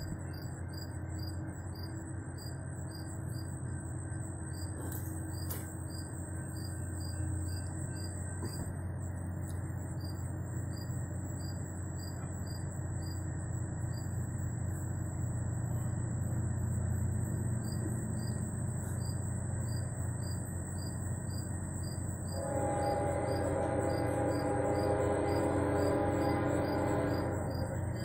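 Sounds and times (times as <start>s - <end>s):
crickets chirping: 0.0s - 28.0s
high insect whine: 0.0s - 28.0s
horn chord: 22.4s - 28.0s.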